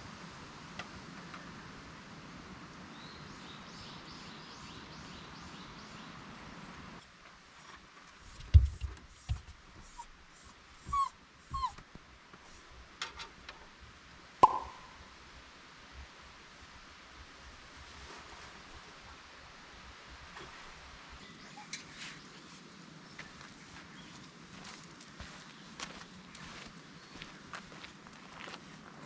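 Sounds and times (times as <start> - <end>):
small dog whining: 9.8 - 11.8
sharp thumps: 14.4 - 14.9.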